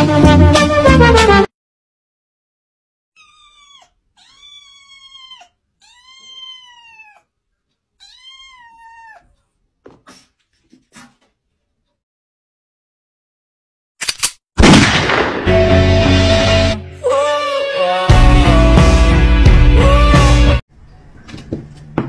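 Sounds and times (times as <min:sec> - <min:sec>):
kitten meowing: 0:03.2 - 0:07.3, 0:08.0 - 0:09.3.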